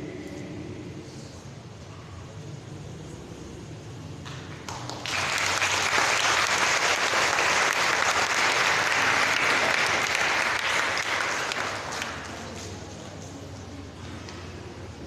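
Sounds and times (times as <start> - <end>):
audience applause: 4.3 - 12.6.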